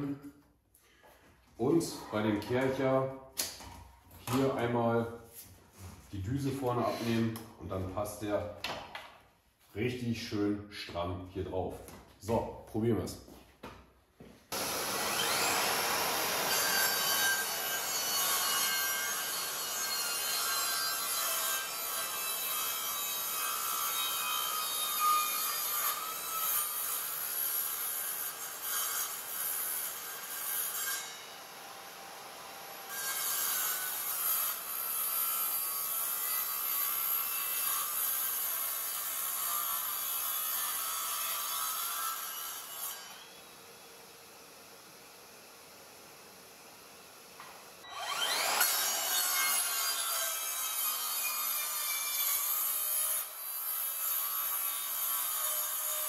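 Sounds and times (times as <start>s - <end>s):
mitre saw cutting wood: 6.2s - 7.4s, 14.5s - 44.5s, 47.8s - 56.0s.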